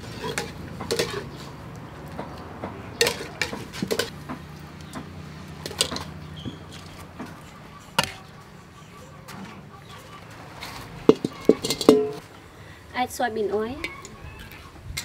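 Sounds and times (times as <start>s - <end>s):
metal cookware clinking: 0.0s - 1.4s, 2.9s - 4.2s, 11.1s - 12.2s.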